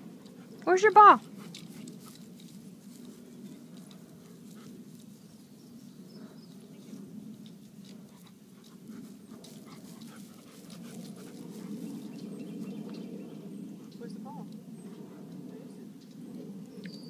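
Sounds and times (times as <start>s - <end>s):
dog panting: 0.0s - 5.3s, 7.8s - 15.5s
steady low hum: 0.0s - 17.0s.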